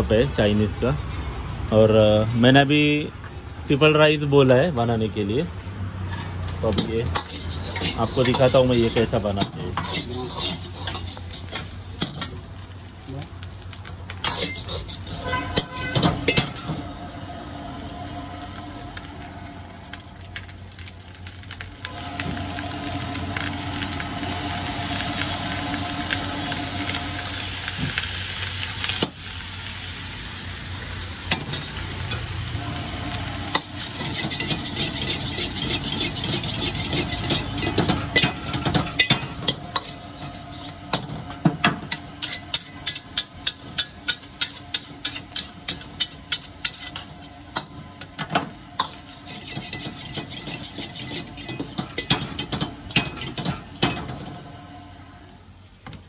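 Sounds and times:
food sizzling in a wok: 3.7 - 56.0
metal ladle scraping wok: 6.0 - 12.5, 14.1 - 20.5, 31.3 - 54.3
ladle clanking on wok: 6.2 - 12.5, 33.4 - 54.3.

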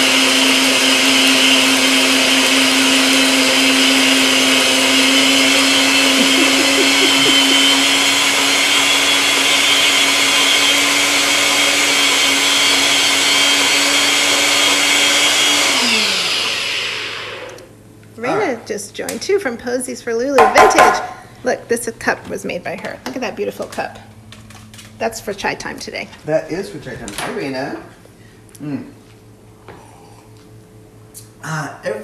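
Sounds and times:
blender motor whine: 0.0 - 17.7.

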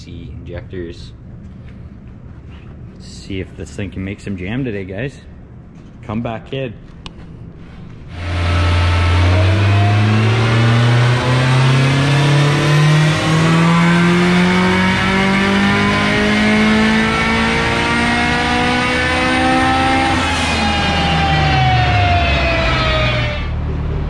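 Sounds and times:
turbocharged car engine revving on dyno: 8.1 - 24.0.

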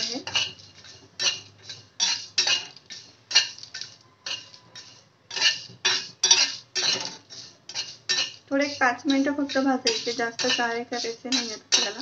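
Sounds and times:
metal spatula scraping pan: 0.0 - 12.0
seeds rattling against pan: 0.0 - 12.0.

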